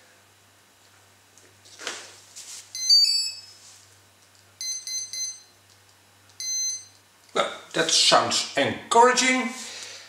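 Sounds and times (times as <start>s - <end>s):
short beeps: 4.6s - 5.6s, 6.4s - 7.0s
electronic start-up beeps: 6.4s - 7.0s.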